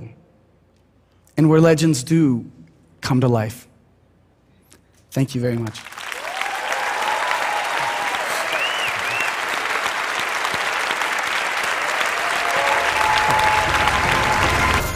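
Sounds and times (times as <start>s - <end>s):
audience applauding: 5.6s - 14.9s
low music: 12.6s - 14.9s.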